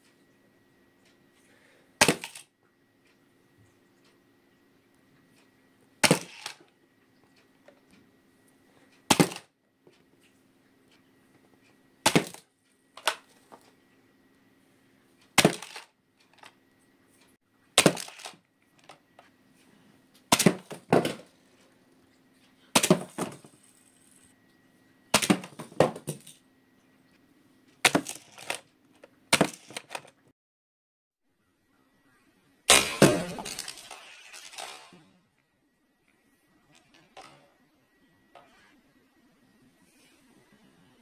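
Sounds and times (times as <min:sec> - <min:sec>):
toy cars clacking on plastic track: 0:02.0 - 0:02.5, 0:06.0 - 0:06.7, 0:15.4 - 0:16.6, 0:17.8 - 0:19.0, 0:27.9 - 0:28.7, 0:29.4 - 0:30.2, 0:32.7 - 0:35.1
toy cars crashing into cardboard box: 0:02.0 - 0:02.5, 0:06.0 - 0:06.6, 0:09.1 - 0:09.5, 0:12.0 - 0:13.2, 0:15.4 - 0:16.5, 0:17.8 - 0:19.0, 0:20.3 - 0:21.3, 0:22.8 - 0:23.8, 0:25.1 - 0:26.4, 0:27.8 - 0:28.6, 0:29.3 - 0:30.2, 0:32.7 - 0:35.0.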